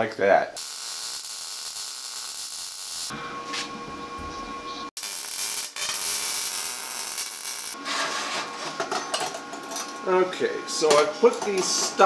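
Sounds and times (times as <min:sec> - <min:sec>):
workshop hum: 0:00.5 - 0:12.0
welding arc crackling and hissing: 0:00.6 - 0:03.1, 0:05.0 - 0:07.8.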